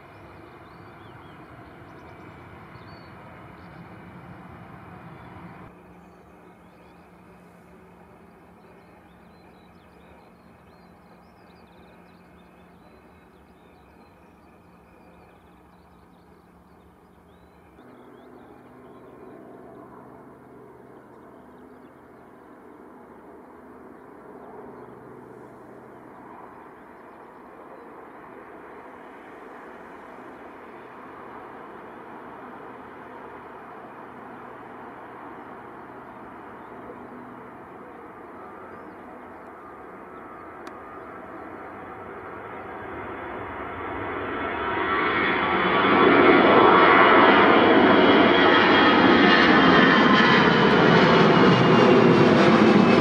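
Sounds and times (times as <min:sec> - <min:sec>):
small birds chirping: 0:00.0 - 0:42.9
distant jet engines rumbling: 0:00.0 - 0:53.0.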